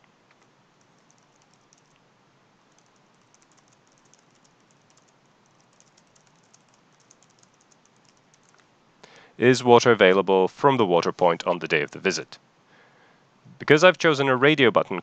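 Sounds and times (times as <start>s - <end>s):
faint keyboard typing: 0.0s - 8.7s, 11.4s - 12.2s.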